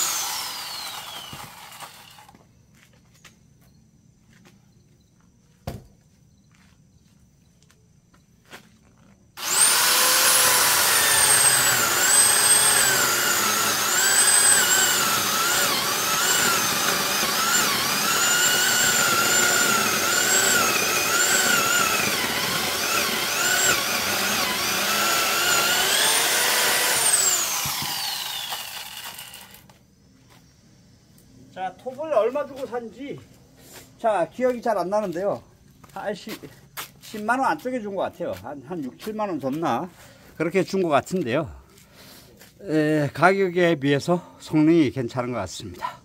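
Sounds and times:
electric chainsaw cutting log: 0.0s - 2.4s, 9.4s - 29.7s.

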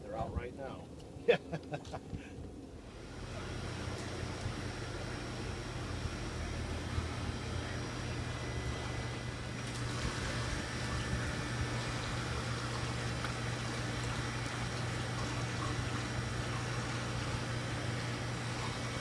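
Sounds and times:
low pump hum: 0.0s - 19.0s
water pouring into tank: 9.6s - 19.0s.

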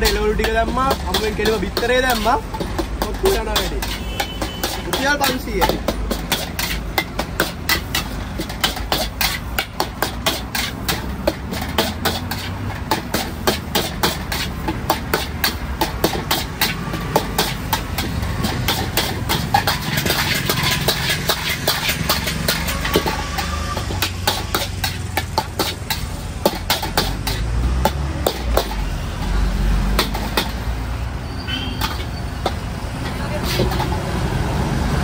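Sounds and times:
metal spatula clinking on wok: 0.0s - 27.5s.

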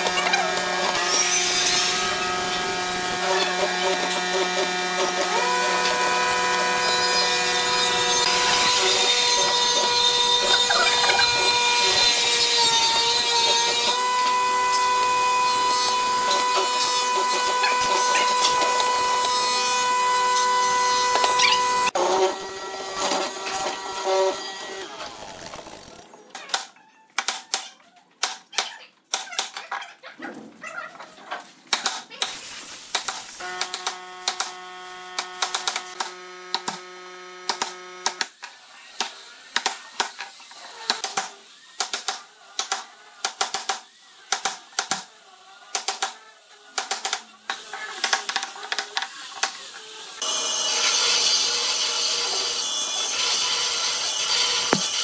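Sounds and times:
bandsaw running: 0.0s - 26.1s, 49.4s - 55.0s.

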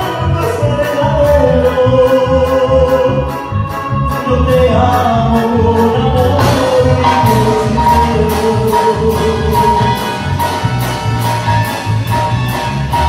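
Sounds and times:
band playing live: 0.0s - 13.0s
held melody: 0.0s - 13.0s
pulsing bass and drum beat: 5.6s - 13.0s.

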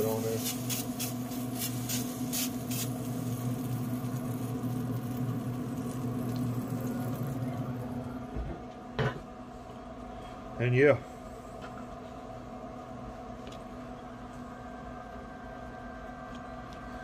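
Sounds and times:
sprayer hiss: 0.0s - 3.3s
grill hum: 0.0s - 17.0s.

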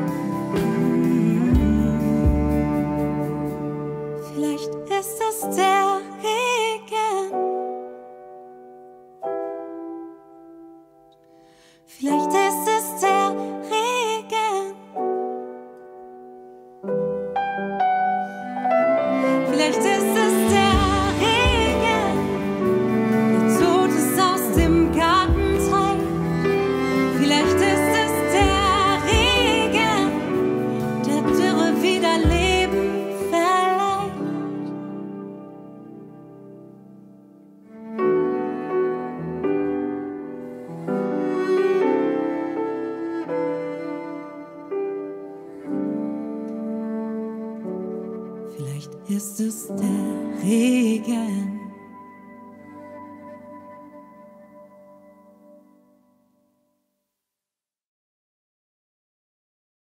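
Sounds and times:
person singing: 0.0s - 7.6s, 11.9s - 15.1s, 18.4s - 35.0s, 48.5s - 52.1s
ballad with piano and cello: 0.0s - 56.0s.

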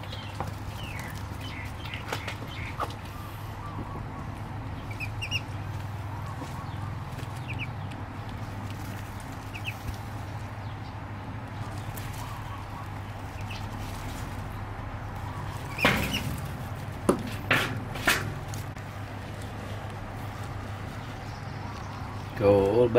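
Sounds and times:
duckling peeping: 0.0s - 10.9s, 11.6s - 16.9s.

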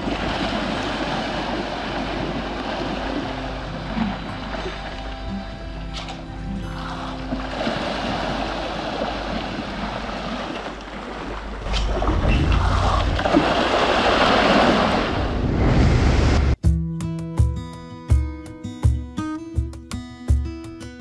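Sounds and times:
fish splashing in water: 6.8s - 15.2s
wind rush: 11.6s - 16.6s.

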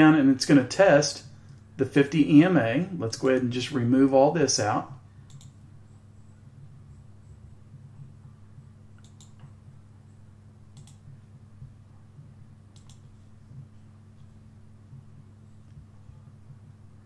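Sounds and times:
steady low hum: 0.0s - 17.0s
computer mouse double clicks: 9.0s - 9.4s, 10.8s - 11.0s, 12.8s - 13.0s.

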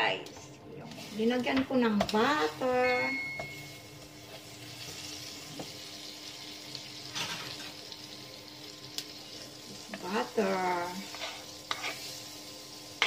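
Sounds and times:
butter sizzling in frying pan: 3.5s - 13.0s
spatula scraping pan: 10.9s - 12.3s.

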